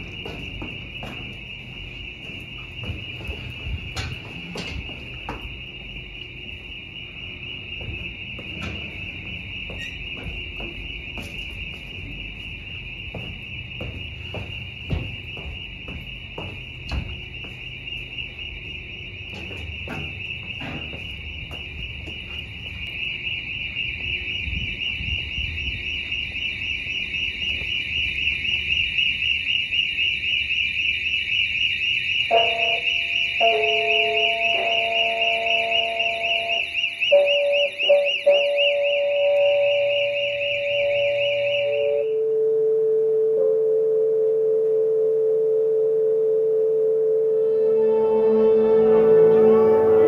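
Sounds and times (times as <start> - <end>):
footsteps or knocks: 0.0 - 5.6, 7.7 - 17.8, 19.3 - 22.8
high-pitched pulsing trill: 39.5 - 50.0
low pure tones: 39.9 - 50.0.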